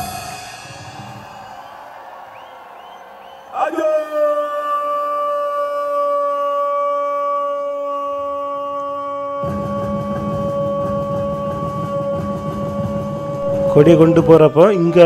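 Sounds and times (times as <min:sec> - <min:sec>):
stadium crowd cheering: 0:00.0 - 0:15.0.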